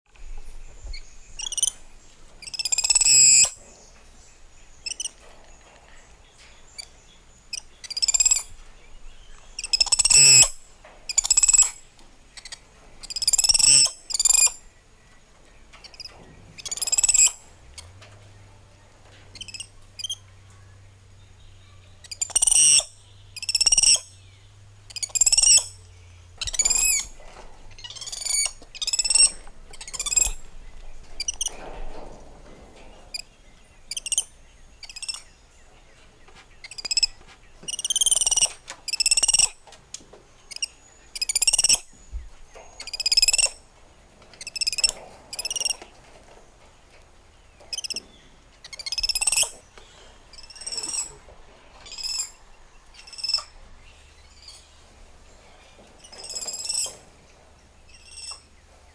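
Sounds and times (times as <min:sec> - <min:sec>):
spider monkeys chirping: 0:02.4 - 0:03.6, 0:07.5 - 0:08.5, 0:09.6 - 0:11.8, 0:15.9 - 0:17.4, 0:22.0 - 0:24.2, 0:24.9 - 0:25.8, 0:26.4 - 0:27.1, 0:27.8 - 0:30.4, 0:33.9 - 0:35.3, 0:36.6 - 0:39.6, 0:40.5 - 0:41.9, 0:42.8 - 0:43.6, 0:48.6 - 0:49.6, 0:50.3 - 0:51.2, 0:51.8 - 0:53.6, 0:56.0 - 0:57.0, 0:57.9 - 0:58.5.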